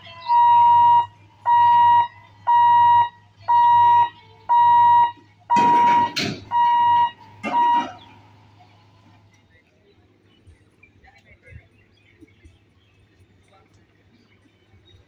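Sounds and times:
level crossing warning beeps: 0.0 - 8.2.

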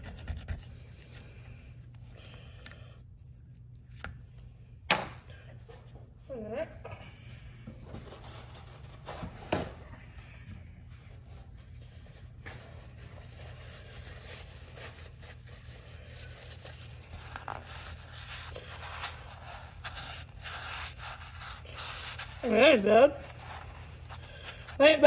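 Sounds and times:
steady low hum: 0.0 - 25.0
towel rustling: 12.3 - 25.0.

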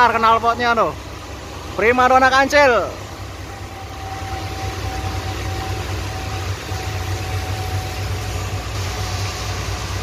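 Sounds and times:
heavy highway traffic drone: 0.0 - 10.0
heavy rain hissing: 2.9 - 10.0
tyre spray on wet road: 5.9 - 10.0.

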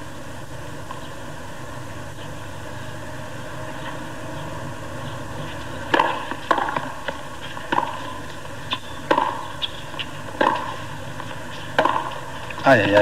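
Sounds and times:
stadium ambience hum: 0.0 - 13.0
tennis ball bouncing: 5.4 - 13.0
tennis racket hitting ball: 5.6 - 13.0.

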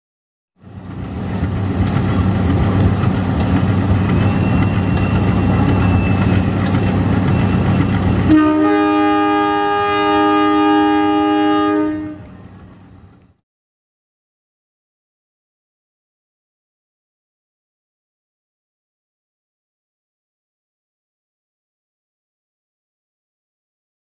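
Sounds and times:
wheels clicking on track: 0.6 - 8.3
diesel locomotive passing: 0.6 - 13.4
locomotive horn blast: 7.5 - 12.5.

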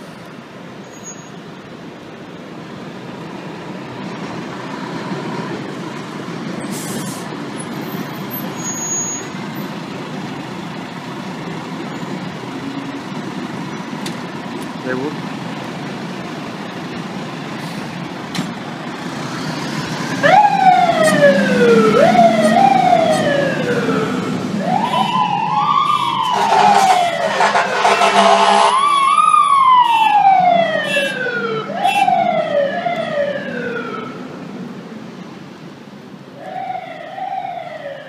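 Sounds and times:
street noise: 0.0 - 38.0
truck engine: 0.0 - 38.0
fire engine siren wailing: 19.0 - 34.5, 36.4 - 38.0
air horn blasts: 25.9 - 28.9, 30.8 - 31.2.

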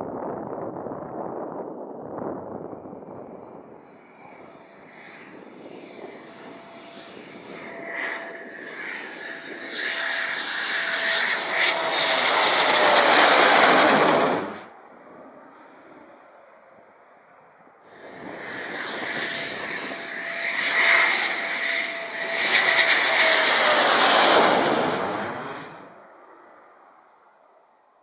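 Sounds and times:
jet engines passing: 0.1 - 27.0
jet whine dropping in pitch: 2.3 - 16.0, 18.0 - 26.6.

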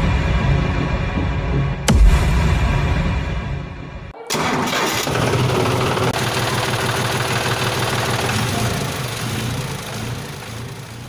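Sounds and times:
tractor engine running: 4.2 - 11.0.

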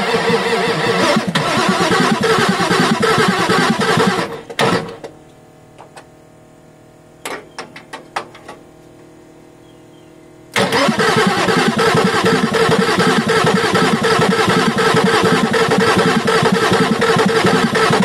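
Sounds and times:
diesel engine cranking: 0.0 - 5.1, 10.5 - 18.0.

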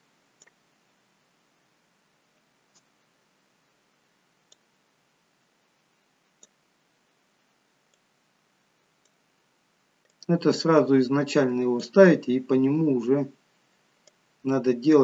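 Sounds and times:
faint computer mouse clicks: 0.4 - 0.6, 2.7 - 3.0, 4.5 - 4.7, 6.4 - 6.6, 9.0 - 9.2, 10.0 - 10.3, 14.0 - 14.2.

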